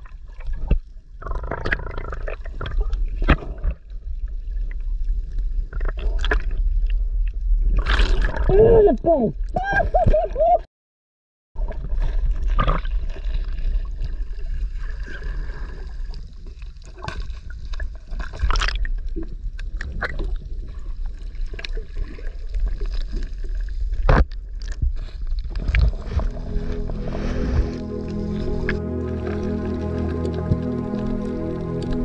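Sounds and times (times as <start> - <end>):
muffled underwater water sloshing: 11.6 - 32.0
low rumble: 25.5 - 32.0.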